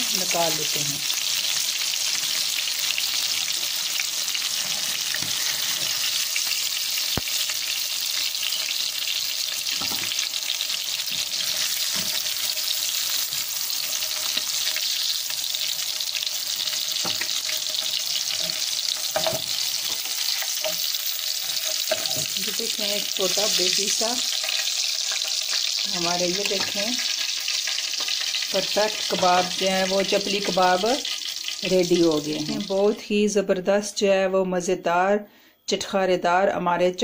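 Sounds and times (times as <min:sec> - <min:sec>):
food sizzling in hot oil: 0:00.0 - 0:33.1
metal spatula scraping pan: 0:04.4 - 0:06.2, 0:17.0 - 0:22.4.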